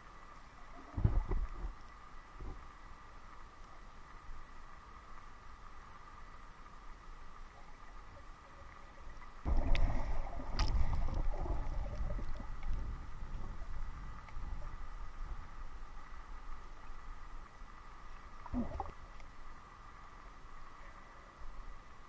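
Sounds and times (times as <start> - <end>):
muffled underwater rumbling and sloshing: 0.0 - 22.0.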